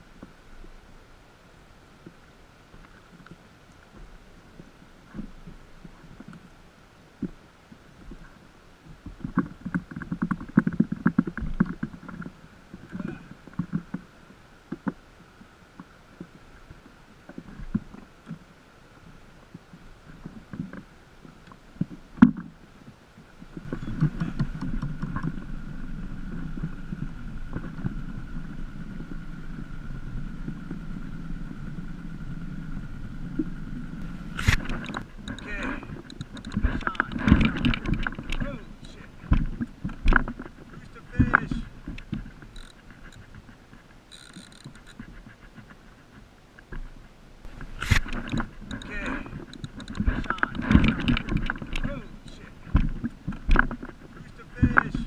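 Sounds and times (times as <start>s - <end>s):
low rumble: 23.6s - 45.6s
knocks and handling clatter: 34.0s - 43.5s, 46.6s - 55.0s.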